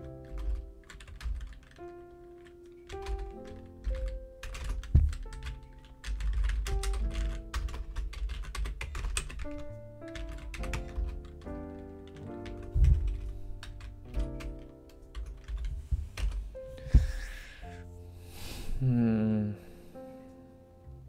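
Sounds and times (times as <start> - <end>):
keyboard typing clicks: 0.0 - 16.4
background music with held notes: 0.0 - 21.0
heavy low thumps: 4.8 - 5.5, 12.6 - 14.5, 15.5 - 17.4.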